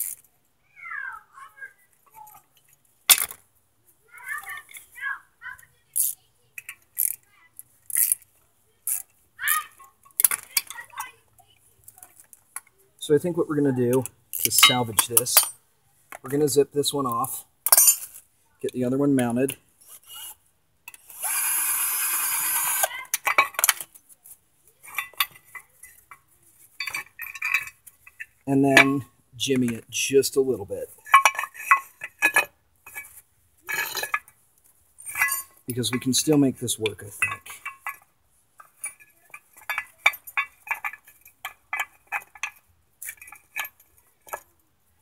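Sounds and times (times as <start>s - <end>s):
metal parts clinking and knocking: 2.4s - 3.4s, 6.0s - 7.2s, 7.8s - 11.2s, 13.9s - 16.4s, 17.6s - 18.2s, 22.5s - 24.0s, 24.8s - 29.0s, 31.0s - 34.4s, 35.0s - 44.6s.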